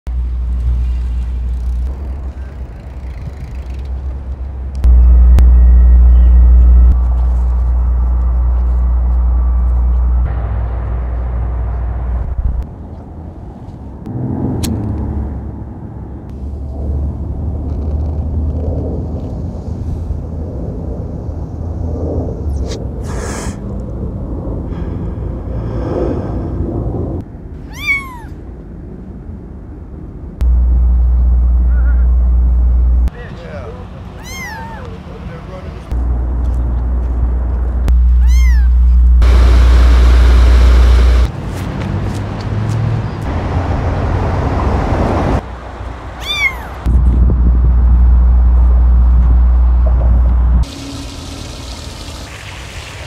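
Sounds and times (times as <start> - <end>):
low outdoor rumble: 0.1 - 41.5, 43.1 - 53.0
faint hum: 4.7 - 12.6, 30.4 - 33.1
cat meow: 27.7 - 28.4, 34.2 - 34.9, 38.2 - 38.8, 46.2 - 46.9.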